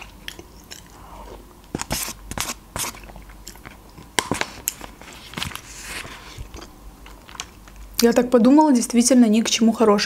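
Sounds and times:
person chewing soup: 0:00.0 - 0:07.8.

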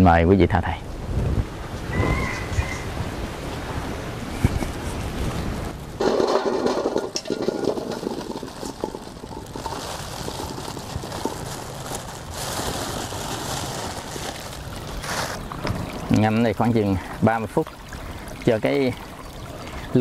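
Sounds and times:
water sloshing in a basin: 0:06.0 - 0:20.0.

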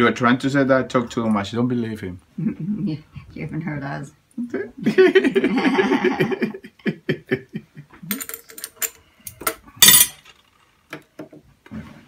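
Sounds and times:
man laughing: 0:04.8 - 0:08.1.

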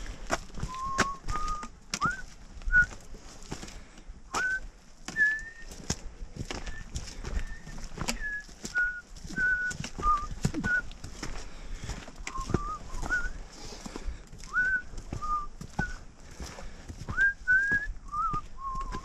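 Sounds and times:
footsteps on a trail: 0:00.0 - 0:19.0
trekking poles tapping: 0:00.2 - 0:02.9, 0:03.7 - 0:19.0
man whistling a tune: 0:00.6 - 0:03.0, 0:04.3 - 0:05.9, 0:06.6 - 0:11.0, 0:12.3 - 0:13.4, 0:14.5 - 0:16.0, 0:17.1 - 0:19.0.

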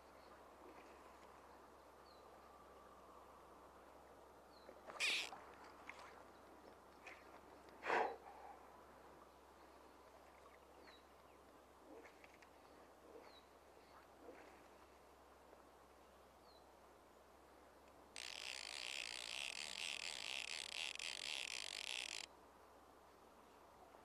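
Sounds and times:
fly line swishing: 0:05.0 - 0:05.4, 0:18.2 - 0:22.3.

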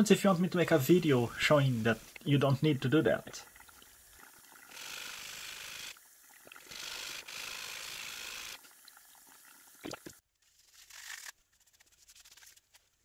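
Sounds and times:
metal scraping on wet sandpaper: 0:10.4 - 0:13.0.

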